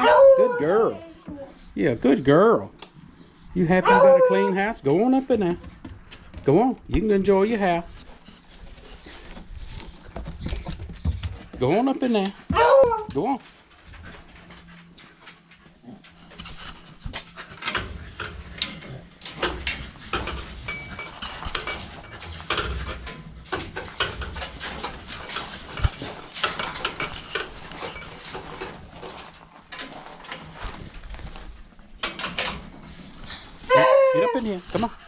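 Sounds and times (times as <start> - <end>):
dog moving about: 12.4 - 35.0.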